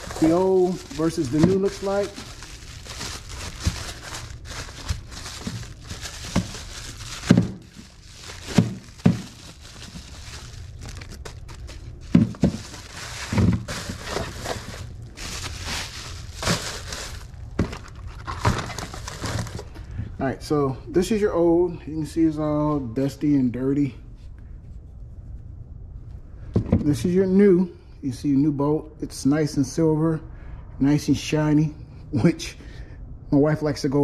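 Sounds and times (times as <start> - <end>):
plastic packaging crinkling: 0.0 - 19.7
hard parts knocking on table: 12.1 - 12.6.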